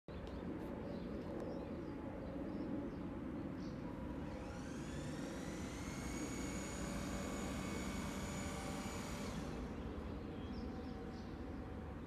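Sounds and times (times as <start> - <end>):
electric motor whining: 4.2 - 10.0.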